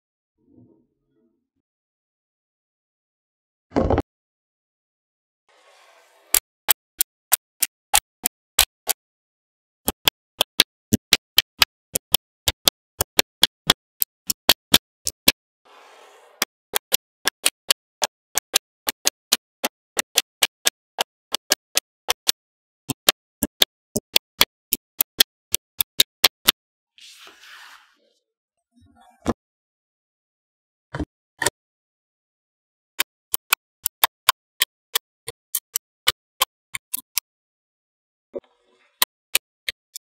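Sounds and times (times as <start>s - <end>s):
magnetic balls clicking together: 9.8s - 15.4s, 16.4s - 26.6s, 33.3s - 37.3s.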